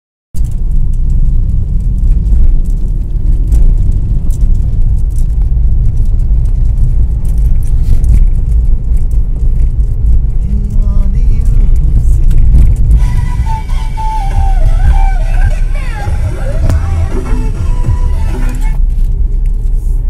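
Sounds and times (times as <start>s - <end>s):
small clicks and rattles: 0.4s - 13.0s
car road and engine rumble: 0.4s - 20.0s.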